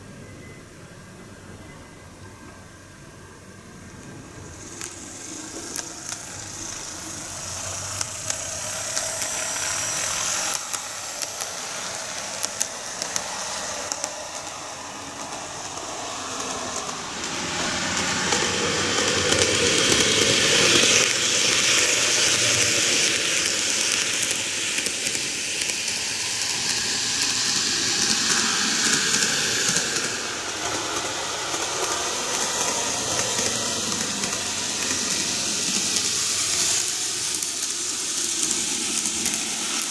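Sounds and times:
model train whirring on rails: 0.0 - 39.9.

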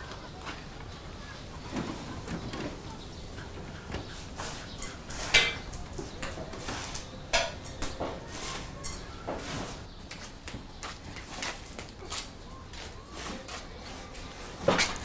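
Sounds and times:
dishes and cutlery clinking: 4.4 - 9.8.

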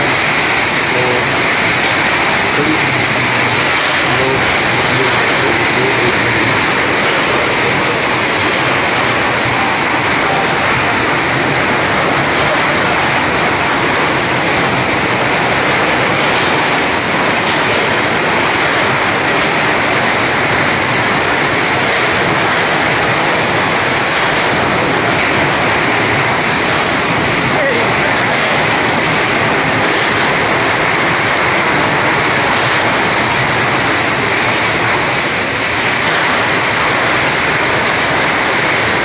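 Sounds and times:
train wagons on rails: 0.0 - 39.0
high thin squeal: 2.4 - 15.7.

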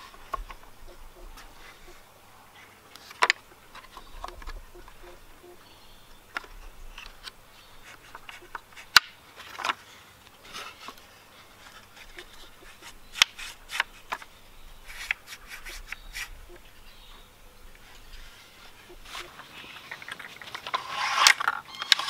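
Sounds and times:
wood scraping on wood: 6.2 - 16.7, 17.8 - 22.0.

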